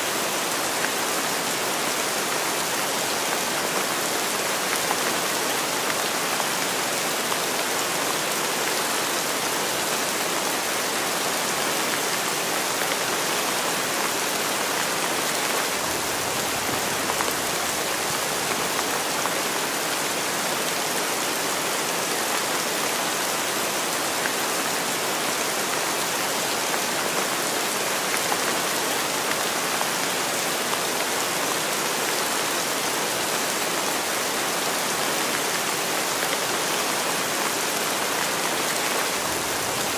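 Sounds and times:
heavy rain hissing: 36.7s - 39.9s.

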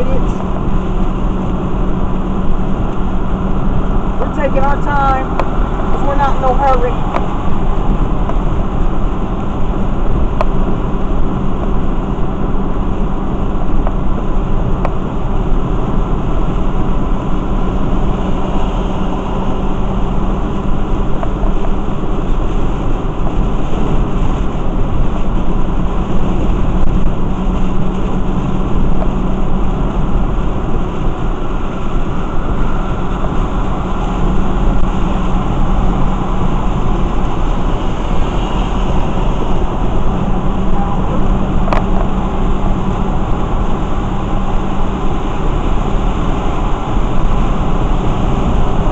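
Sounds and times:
constant low road drone: 0.0s - 48.9s
tyres hissing on wet pavement: 17.9s - 48.9s.

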